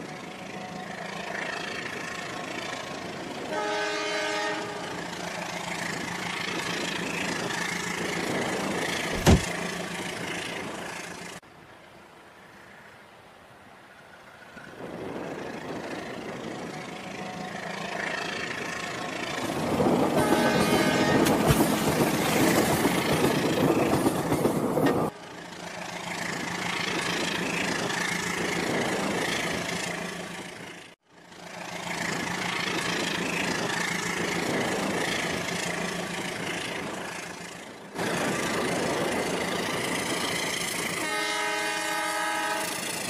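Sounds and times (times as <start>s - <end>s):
diesel train engine drone: 0.0s - 43.0s
train horn: 3.5s - 5.1s, 20.1s - 21.4s, 40.9s - 43.0s.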